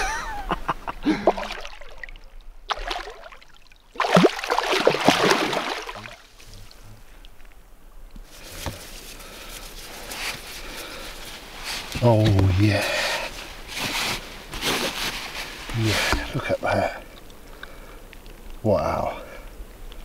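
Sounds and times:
water trickling: 1.1s - 7.5s
fish splashing in water: 1.3s - 6.4s.

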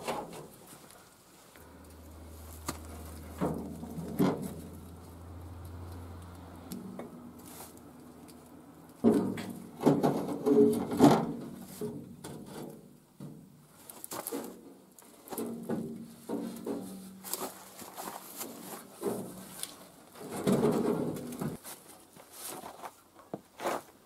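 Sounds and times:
metal grinding and scraping: 0.0s - 21.6s
metallic knocks and clanks: 2.7s - 4.8s, 9.0s - 13.6s, 15.3s - 17.2s, 20.2s - 21.6s.

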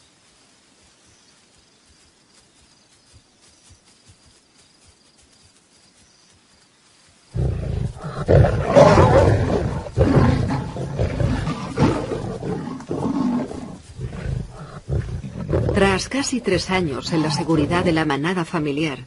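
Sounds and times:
lions roaring and snarling: 7.4s - 18.1s.

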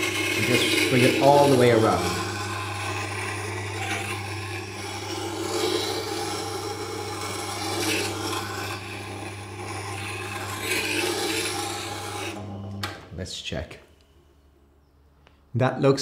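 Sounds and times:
steel scraping on grindstone: 0.0s - 12.4s
machine motor hum: 0.0s - 13.2s.

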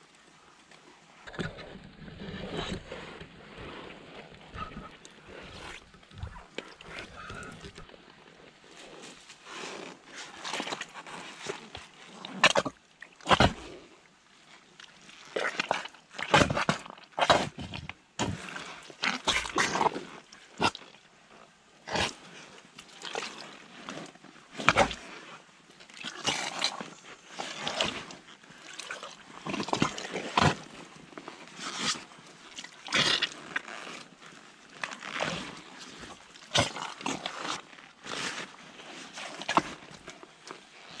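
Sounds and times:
boots squelching in mud: 4.6s - 8.0s, 26.0s - 30.8s, 34.8s - 38.5s, 39.2s - 40.1s.

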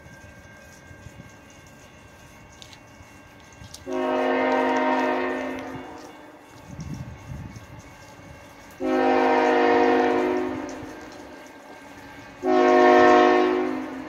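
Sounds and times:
locomotive air horn blowing: 3.8s - 6.4s, 8.8s - 11.0s, 12.4s - 14.0s.

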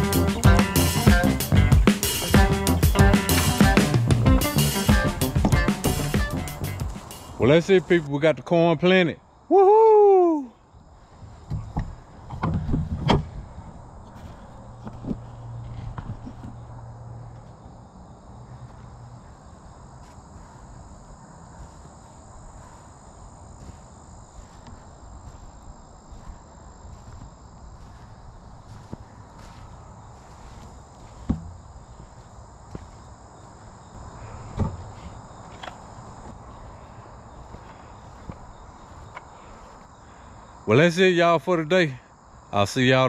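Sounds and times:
crickets and insects chirping: 0.0s - 43.0s
footsteps on soil: 14.0s - 16.7s, 19.9s - 33.2s, 34.7s - 39.9s.

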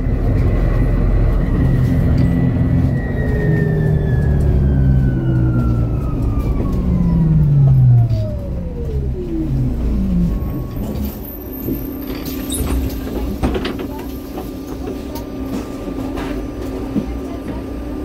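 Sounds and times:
city bus running: 0.0s - 18.0s.

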